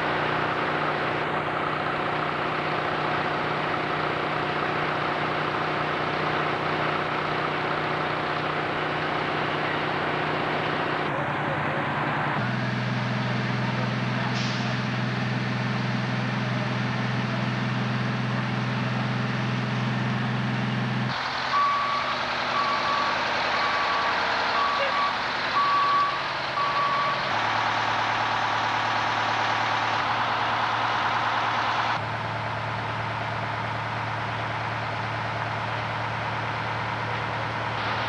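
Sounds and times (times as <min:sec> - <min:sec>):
fire truck engines running: 0:00.0 - 0:38.0
reversing alarm beeps: 0:21.5 - 0:27.2.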